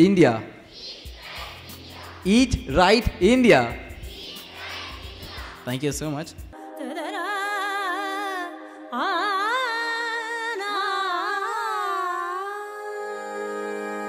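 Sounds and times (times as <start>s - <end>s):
voice singing ornamented melody: 0.7s - 5.7s.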